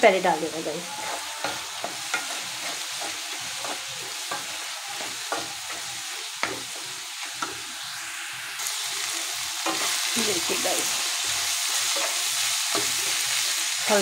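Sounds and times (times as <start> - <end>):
vegetables sizzling in oil: 0.0 - 14.0
wooden spatula scraping a pan: 0.6 - 7.6.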